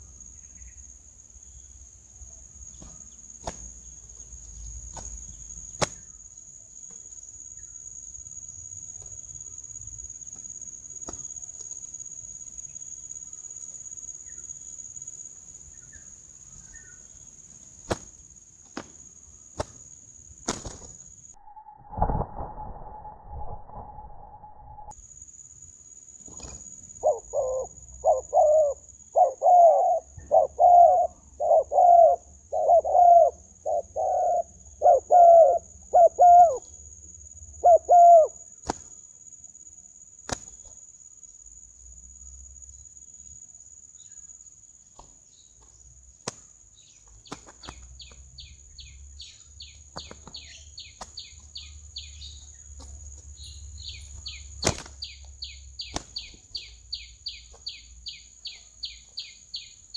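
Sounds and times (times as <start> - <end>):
small bird chirping: 0.0 - 7.9, 15.6 - 18.0, 44.9 - 59.9
dove cooing: 27.0 - 36.6, 37.6 - 38.4.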